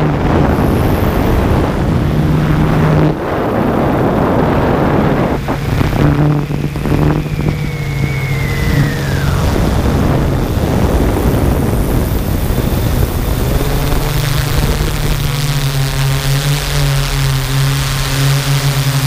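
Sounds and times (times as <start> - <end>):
drone propellers buzzing: 0.0 - 19.0.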